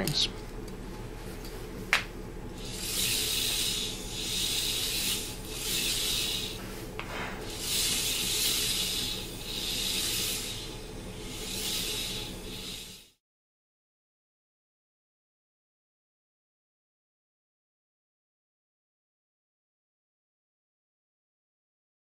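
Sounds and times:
toy coaster car rolling on track: 2.6s - 6.6s, 7.4s - 13.2s.

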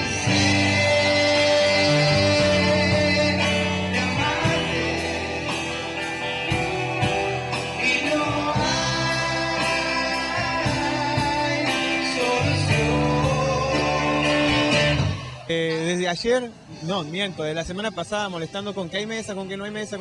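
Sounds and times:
person singing: 0.0s - 15.5s
electric guitars: 0.0s - 19.9s
drums: 0.0s - 20.0s
electric bass: 0.0s - 20.0s.

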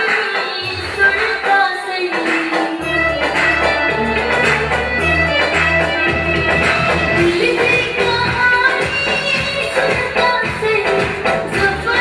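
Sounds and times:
loud dance music: 0.0s - 12.0s
bass line: 2.8s - 9.7s.

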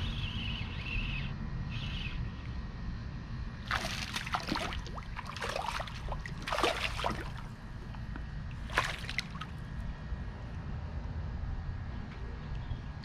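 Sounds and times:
steady low rumble: 0.0s - 13.0s
water sloshing and splashing: 3.6s - 9.8s.

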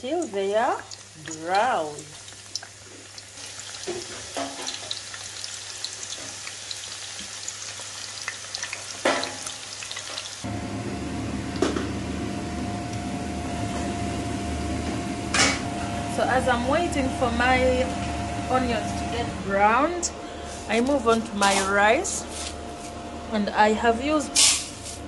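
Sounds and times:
onions sizzling in hot oil: 0.0s - 10.5s
low hum: 10.5s - 24.9s.

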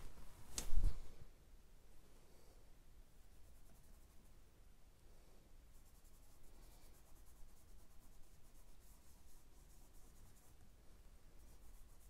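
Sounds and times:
fingers rubbing charcoal on paper: 5.8s - 10.6s, 11.4s - 12.0s.

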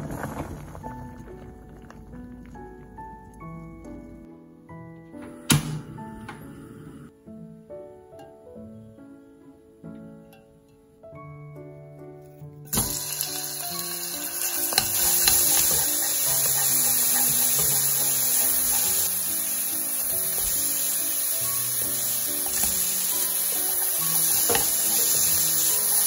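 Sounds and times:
light background music: 2.0s - 26.0s
bacon stirred in frying pan: 12.7s - 26.0s
garlic sizzling in oil: 12.7s - 26.0s.

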